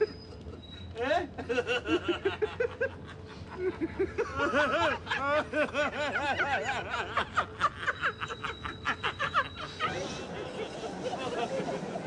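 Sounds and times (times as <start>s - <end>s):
person laughing: 1.4s - 12.0s.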